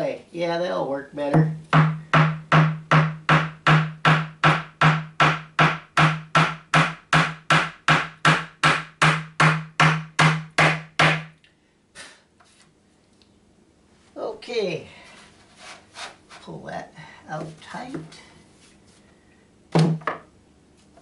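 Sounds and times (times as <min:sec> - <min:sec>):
hammer driving nail into wood: 0:01.4 - 0:11.3.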